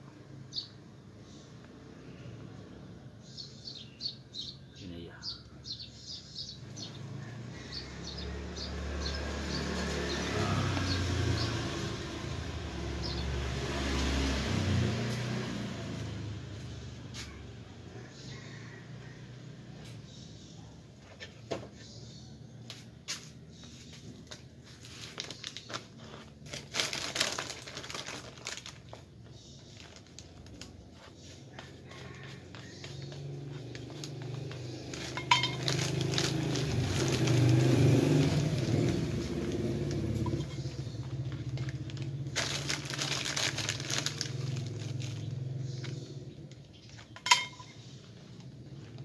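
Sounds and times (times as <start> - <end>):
plastic pots clicking and knocking: 22.6 - 37.4, 38.2 - 49.0
plastic sack crinkling: 24.6 - 31.0, 33.5 - 45.9.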